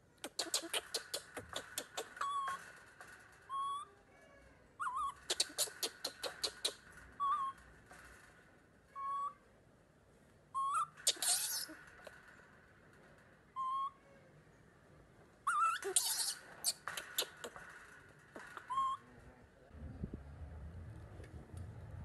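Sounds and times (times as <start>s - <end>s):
chain-link fence clinking: 0.4s - 3.9s, 5.0s - 9.0s, 10.8s - 13.9s, 15.7s - 19.3s
baby monkey coo calls: 4.8s - 7.5s, 10.6s - 11.8s, 15.5s - 17.6s, 18.6s - 19.0s.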